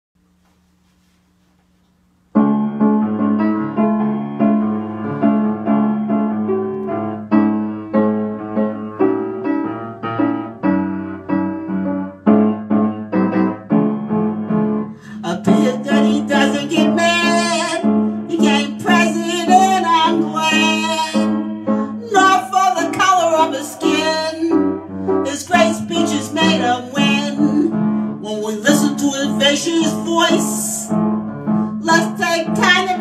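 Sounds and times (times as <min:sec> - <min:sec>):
piano chords: 0:02.0 - 0:33.0
woman singing: 0:15.2 - 0:24.6, 0:25.2 - 0:30.9, 0:31.8 - 0:33.0.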